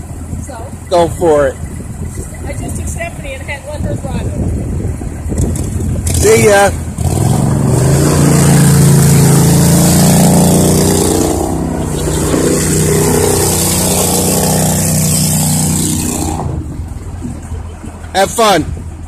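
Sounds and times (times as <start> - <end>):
vehicle engine driving past: 7.0 - 18.1.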